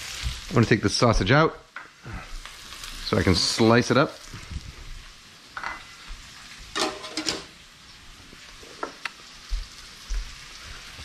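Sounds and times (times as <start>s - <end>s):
sausages sizzling in pan: 0.0s - 11.0s
tongs clinking against pan: 6.8s - 7.5s.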